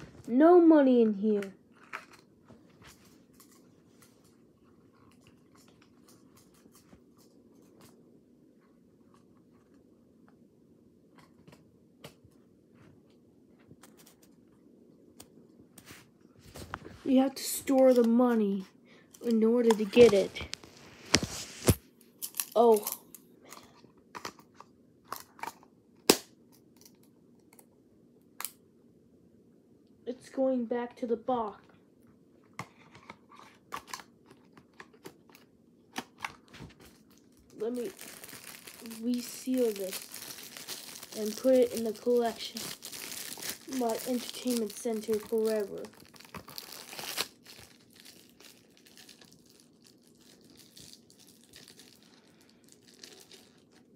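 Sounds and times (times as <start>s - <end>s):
faint rustling and crinkling: 0.0s - 10.5s, 11.1s - 22.1s, 31.4s - 53.9s.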